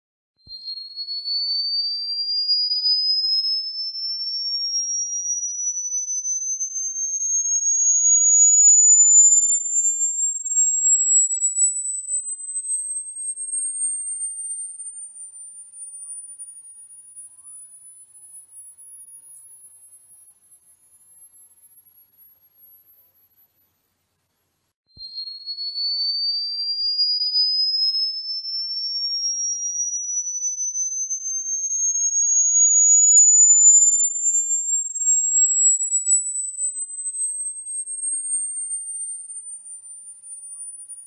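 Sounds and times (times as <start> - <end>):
high-pitched rising sine tone: 4.2 - 14.9, 26.7 - 39.6.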